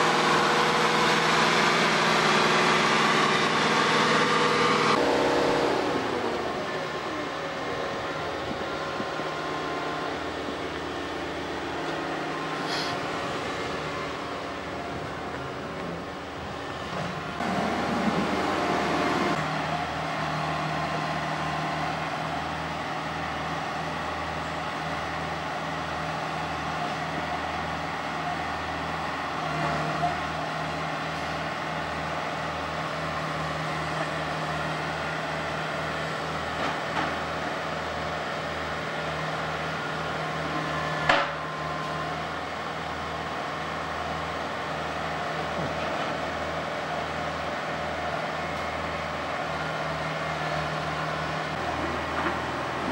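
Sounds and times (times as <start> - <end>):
excavator diesel engines droning: 0.0 - 52.9.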